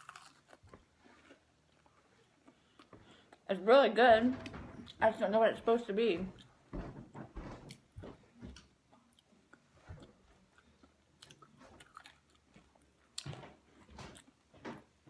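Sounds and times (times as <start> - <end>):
chewing crunchy snacks: 0.0 - 3.4, 9.1 - 14.4.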